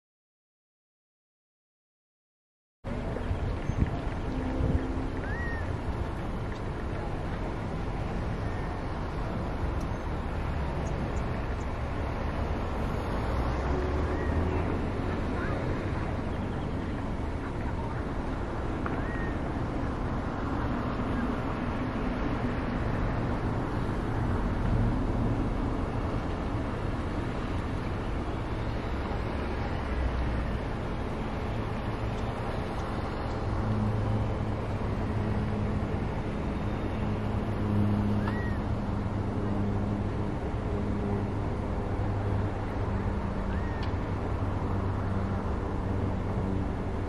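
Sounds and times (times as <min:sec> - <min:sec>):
distant traffic rumble: 0:02.8 - 0:47.0
low droning hum: 0:02.9 - 0:13.2
faint bird chirps: 0:03.6 - 0:05.7, 0:18.9 - 0:19.4, 0:38.2 - 0:38.6.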